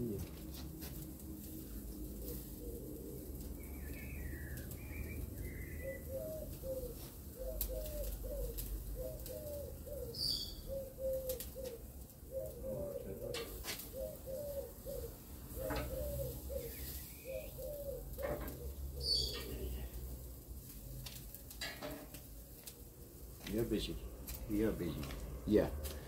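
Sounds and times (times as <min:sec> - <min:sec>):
pigeon cooing: 0:01.7 - 0:20.2
small bird chirping: 0:03.5 - 0:18.0, 0:19.0 - 0:19.9.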